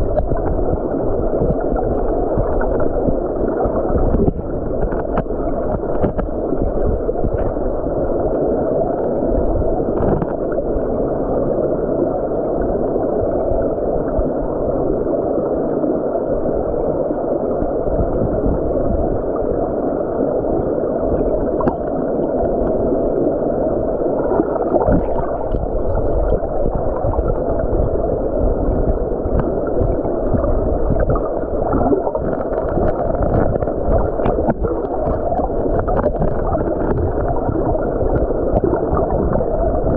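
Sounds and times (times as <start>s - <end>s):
faint clicks and knocks: 0.0s - 7.6s, 24.7s - 39.9s
underwater stream current rushing: 0.0s - 39.9s.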